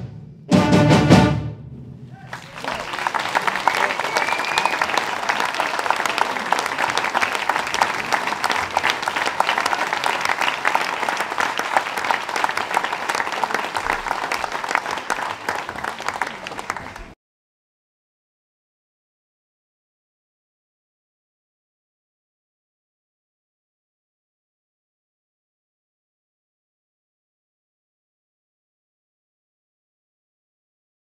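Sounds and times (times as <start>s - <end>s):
audience applauding: 2.1s - 17.2s.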